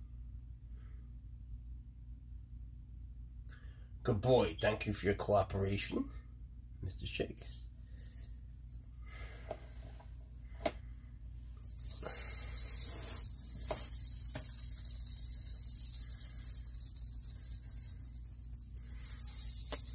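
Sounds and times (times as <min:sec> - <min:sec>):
rattlesnake rattling: 0:07.9 - 0:09.6, 0:11.5 - 0:19.9.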